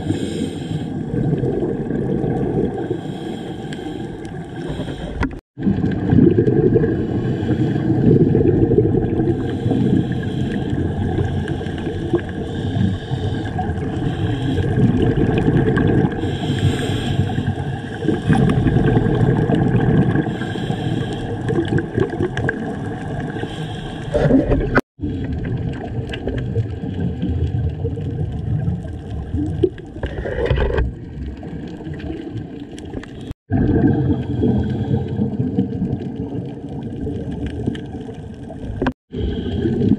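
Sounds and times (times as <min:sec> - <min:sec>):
gurgling bubbles: 0:00.0 - 0:39.9
muffled underwater churning rumble: 0:00.0 - 0:39.9.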